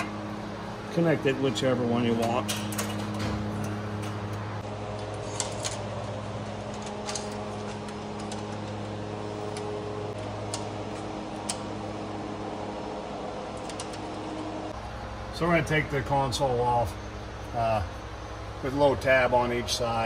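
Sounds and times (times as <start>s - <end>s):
mechanical hum: 0.0s - 20.0s.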